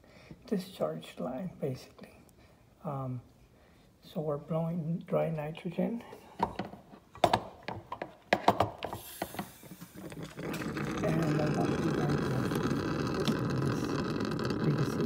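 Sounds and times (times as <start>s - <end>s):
gas rushing through lines: 9.0s - 15.0s.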